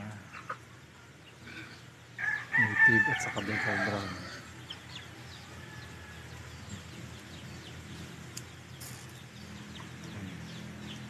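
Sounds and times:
chickens chirping: 0.0s - 11.0s
low steady hum: 0.0s - 11.0s
rustle: 8.3s - 9.4s.

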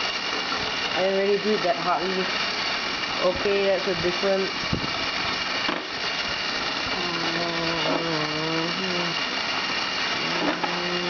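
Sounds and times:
battery motor high whine: 0.0s - 11.0s
person humming wavering tone: 7.0s - 9.2s, 10.2s - 11.0s.

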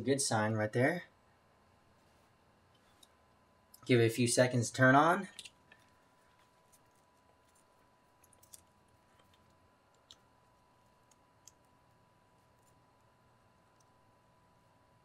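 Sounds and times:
faint clicks of wire connectors: 8.2s - 10.3s.

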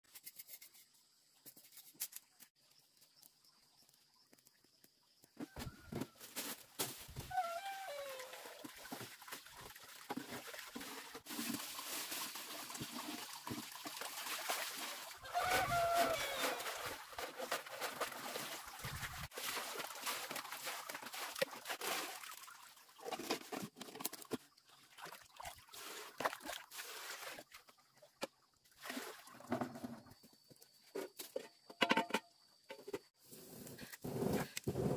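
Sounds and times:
water splashing over greens: 7.0s - 23.3s.

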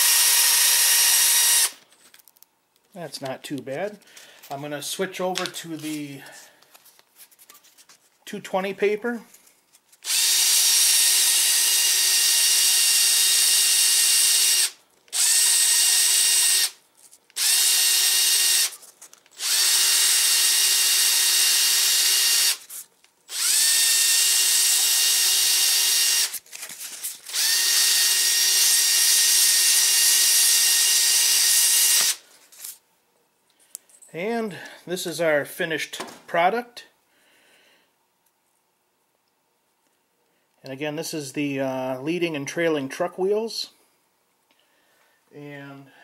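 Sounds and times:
cordless drill motor whining: 0.0s - 1.8s, 10.0s - 16.8s, 17.4s - 22.7s, 23.3s - 26.4s, 27.3s - 32.2s.

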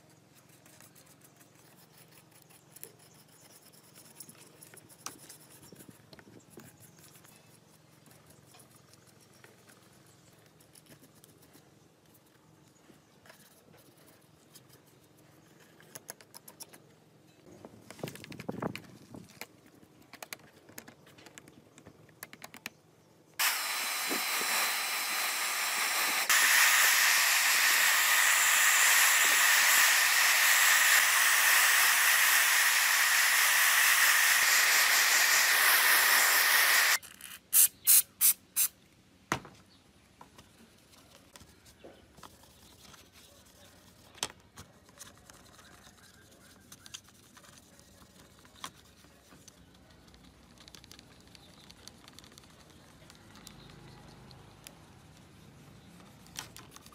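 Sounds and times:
faint ticks and rubbing: 0.0s - 16.9s
loud steady hiss: 23.4s - 37.0s
short hisses: 23.4s - 37.0s.

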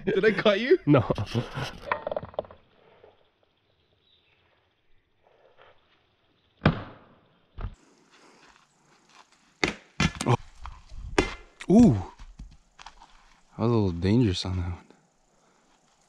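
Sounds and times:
knife striking tree trunk: 6.6s - 7.8s, 9.6s - 10.3s, 11.1s - 11.9s.

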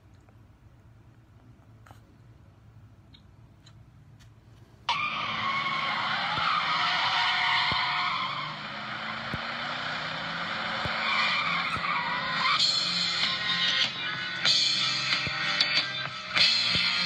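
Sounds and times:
car tyres screeching: 4.9s - 17.0s.

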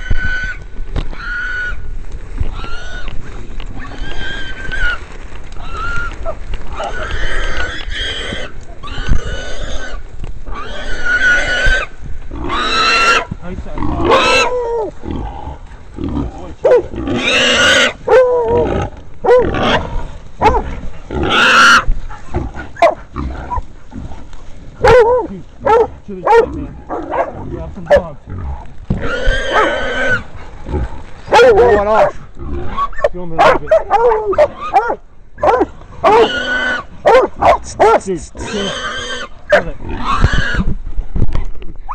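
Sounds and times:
hog squealing: 0.0s - 1.8s, 5.6s - 13.3s, 13.9s - 14.9s, 17.2s - 19.8s, 21.2s - 21.9s, 36.0s - 36.9s, 37.8s - 40.6s
dogs barking: 16.6s - 16.9s, 18.0s - 18.6s, 19.2s - 19.8s, 20.4s - 20.8s, 22.2s - 23.8s, 24.8s - 28.2s, 29.5s - 29.8s, 31.3s - 32.2s, 32.8s - 36.4s, 37.0s - 38.2s, 39.5s - 39.8s.

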